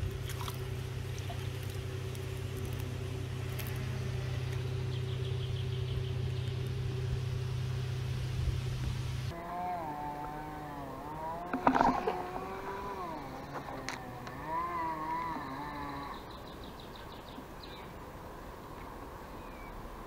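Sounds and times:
muffled underwater rumble: 0.0 - 16.4
faint clicks: 11.4 - 16.3.

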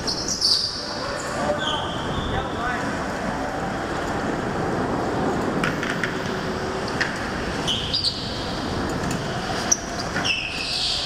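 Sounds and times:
tyre squeals: 7.6 - 8.6, 9.6 - 11.0.

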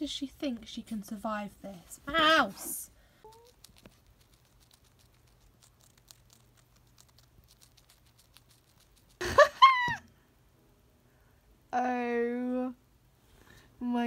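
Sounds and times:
hamster crunching carrot: 3.2 - 9.3.

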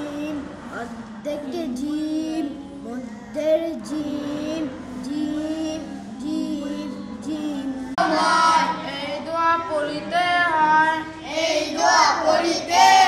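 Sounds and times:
children chanting sing-song: 3.4 - 13.0.

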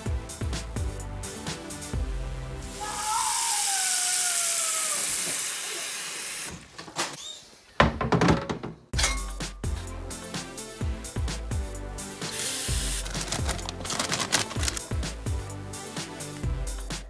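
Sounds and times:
music: 0.0 - 3.4, 8.9 - 17.0
knocks and clatters: 7.8 - 9.0.

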